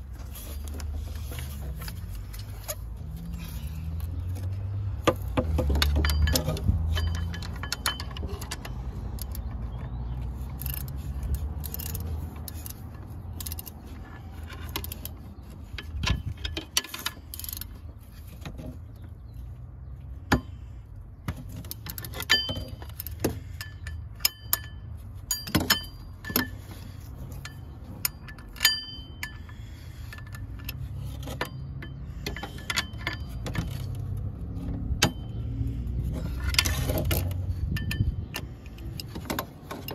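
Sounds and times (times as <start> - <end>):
metal tools clinking: 5.2 - 18.7, 21.4 - 39.9.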